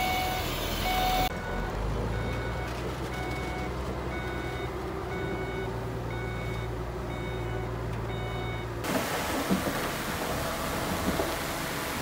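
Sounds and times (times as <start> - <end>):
reversing alarm beeping: 0.0 - 8.7
diesel engine hum: 0.0 - 12.0.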